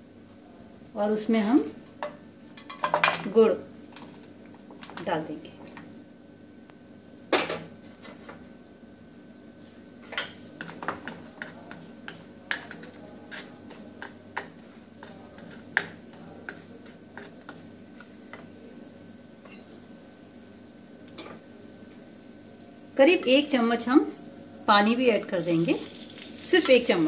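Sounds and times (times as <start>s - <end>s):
faint steady hum: 0.0s - 27.0s
spatula and lumps scraping a pan: 9.6s - 18.6s.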